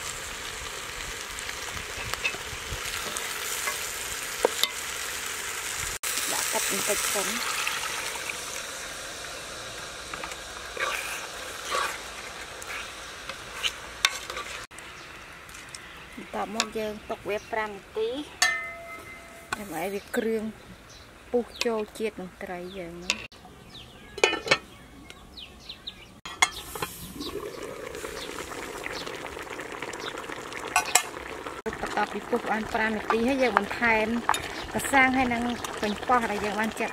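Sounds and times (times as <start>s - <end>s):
soup bubbling and hissing: 0.0s - 16.2s, 26.5s - 36.9s
wood fire crackling: 0.0s - 16.4s, 26.6s - 36.9s
fish sizzling in a pot: 0.0s - 17.2s, 26.4s - 36.9s
metal pot lid clinking: 18.4s - 19.4s.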